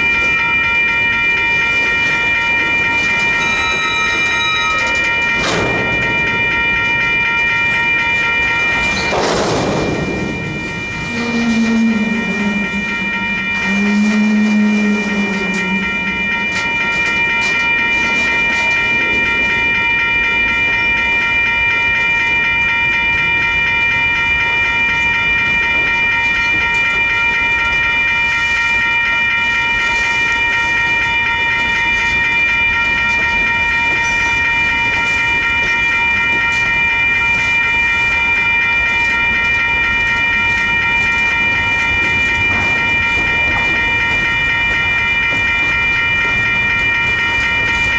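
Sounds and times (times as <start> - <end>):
crossing warning bell: 0.0 - 47.9
train wheels clacking on rails: 1.7 - 11.5, 29.7 - 47.9
low drone: 2.6 - 20.6.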